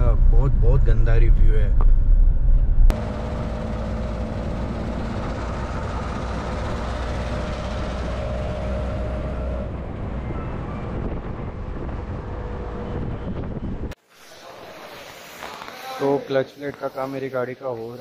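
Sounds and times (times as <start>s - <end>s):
car road noise rumble: 0.0s - 14.0s.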